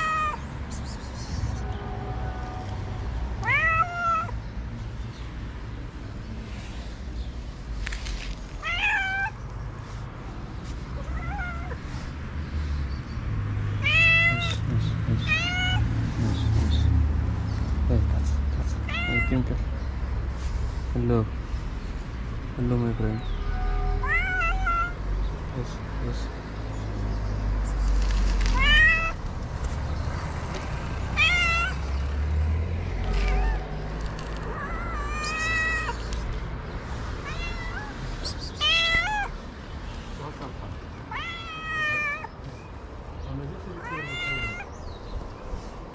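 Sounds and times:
cat meowing: 0.0s - 0.5s, 2.2s - 4.4s, 8.5s - 9.4s, 11.0s - 11.8s, 13.8s - 15.9s, 18.8s - 19.4s, 23.5s - 25.0s, 28.4s - 29.2s, 31.1s - 32.0s, 33.0s - 36.1s, 37.2s - 39.4s, 41.1s - 42.4s, 43.8s - 44.8s.

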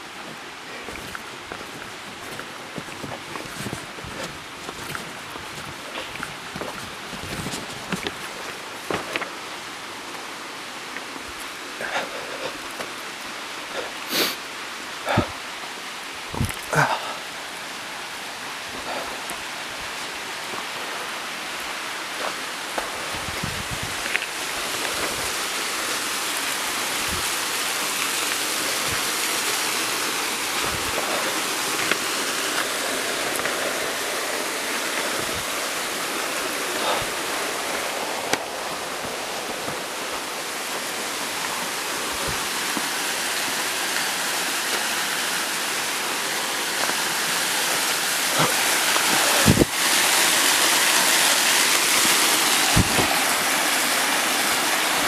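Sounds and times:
waterfall rushing: 0.0s - 55.0s
soft low thumps: 16.3s - 16.6s.

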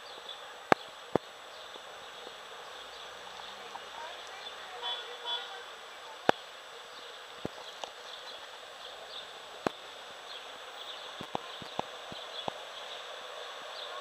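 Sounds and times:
floodwater running over street: 0.0s - 14.0s.

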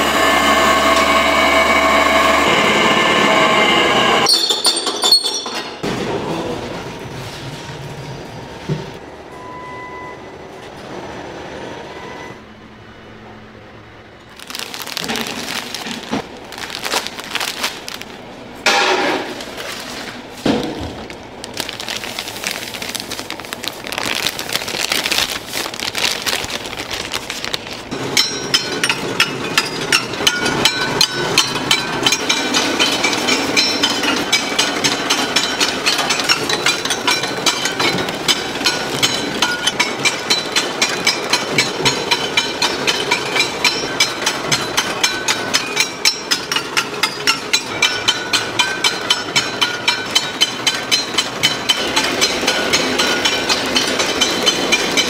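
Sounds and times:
packaging machine high whine: 0.0s - 5.3s
plastic bag rustling and crackling: 14.3s - 18.2s, 19.3s - 27.9s.

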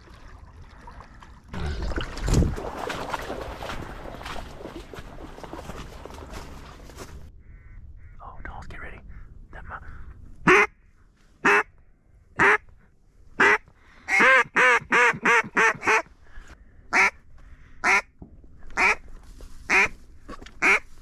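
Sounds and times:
duck call quacks: 10.5s - 10.7s, 11.4s - 11.7s, 12.4s - 12.6s, 13.4s - 16.1s, 16.9s - 17.2s, 17.8s - 18.0s, 18.8s - 19.0s, 19.7s - 19.9s, 20.6s - 20.8s.

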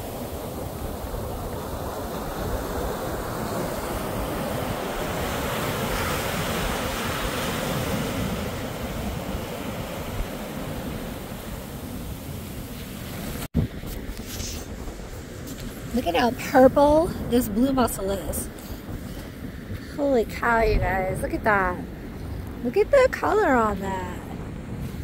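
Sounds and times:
surf breaking on beach: 0.0s - 19.2s
wind on microphone: 0.0s - 25.0s.

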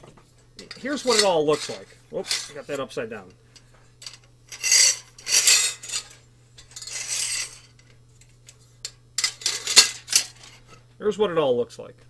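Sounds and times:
metal spring and tube clattering: 0.6s - 2.8s, 4.0s - 10.8s.

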